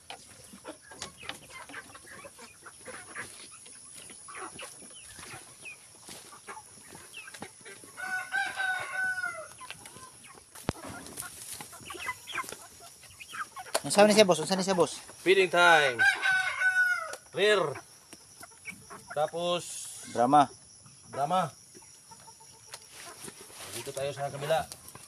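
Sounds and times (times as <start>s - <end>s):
chickens clucking: 0.0s - 25.0s
rooster crowing: 8.0s - 9.6s, 15.7s - 17.2s.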